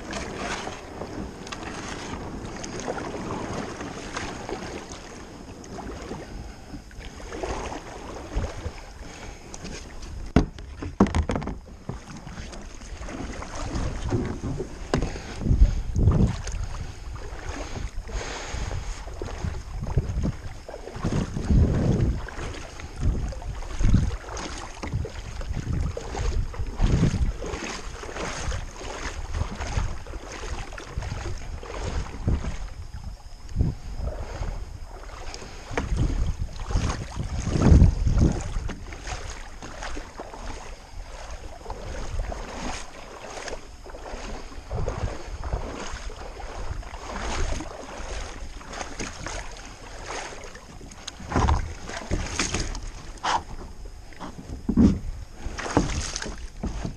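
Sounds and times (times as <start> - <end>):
light taps on hull: 0.0 - 8.8, 9.5 - 16.7, 34.9 - 40.6, 46.9 - 56.9
water lapping against kayak hull: 0.0 - 56.9
wind buffeting microphone: 12.8 - 56.9.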